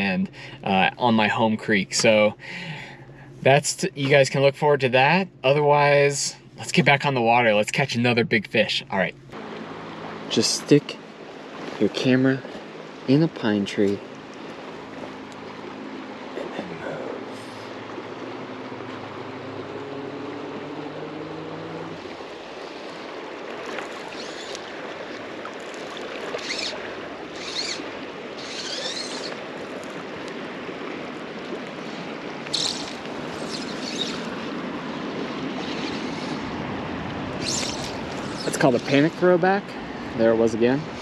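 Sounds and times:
low hum: 0:00.0 - 0:41.0
river water rushing: 0:09.3 - 0:41.0.

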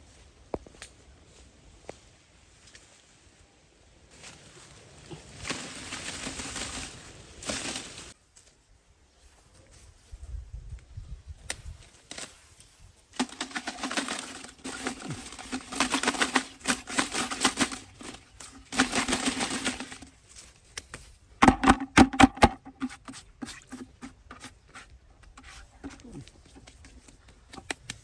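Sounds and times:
leaves rustling in plastic bucket: 0:04.2 - 0:08.2, 0:13.2 - 0:20.5, 0:22.4 - 0:27.6
branch knocking on bucket: 0:21.4 - 0:24.6.

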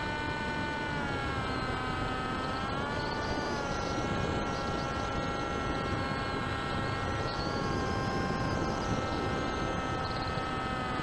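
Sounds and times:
model aircraft motor whining: 0:00.0 - 0:11.0.

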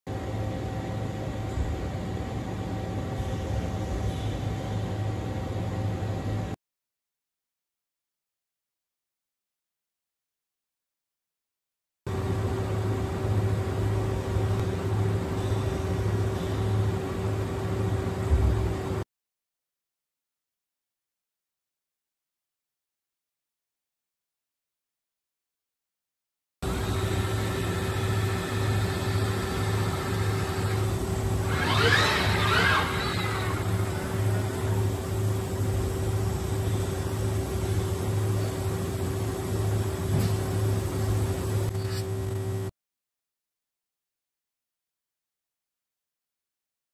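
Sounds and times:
machinery hum: 0:00.1 - 0:06.6, 0:12.1 - 0:19.0, 0:26.6 - 0:42.7.

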